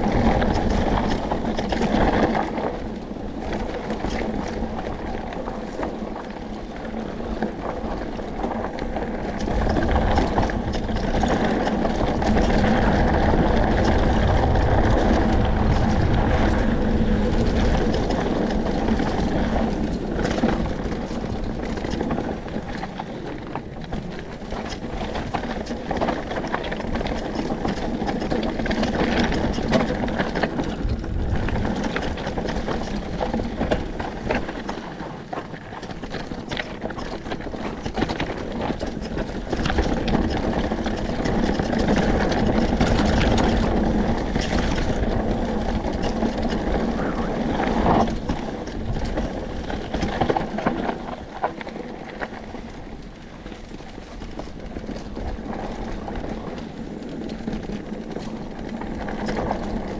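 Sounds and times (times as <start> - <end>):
bike rattling clicks and knocks: 0.0 - 59.9
bike tyres crunching over gravel: 0.0 - 59.9
wind rush on microphone: 0.0 - 59.9.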